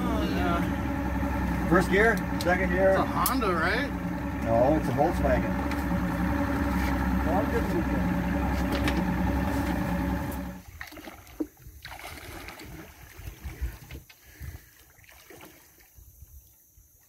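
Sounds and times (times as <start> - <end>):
low irregular rumbles: 0.0 - 10.6
outboard motor idling: 0.0 - 10.8
river water: 0.0 - 17.0.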